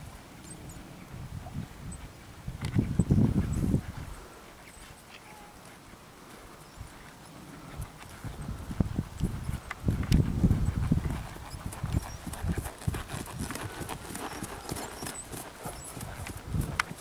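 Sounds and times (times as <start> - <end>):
pony hoofbeats trotting on grass: 4.8 - 17.0.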